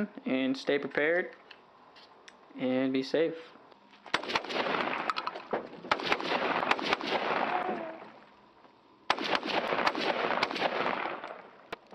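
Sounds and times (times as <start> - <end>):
rifle shots echoing: 4.1 - 8.1, 9.1 - 11.7.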